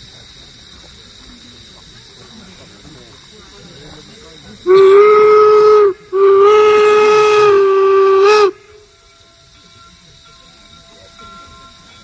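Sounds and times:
steam whistle blasts: 0:04.7 - 0:09.2.

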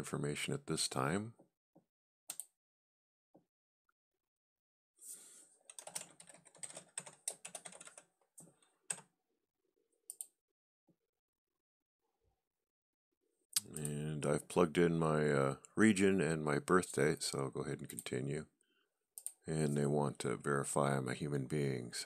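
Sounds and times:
computer keyboard typing: 0:05.7 - 0:08.1.

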